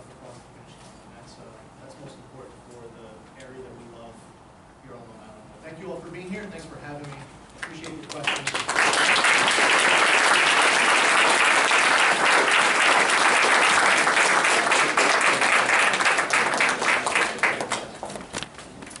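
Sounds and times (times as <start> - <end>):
audience applauding: 7.6 - 18.2.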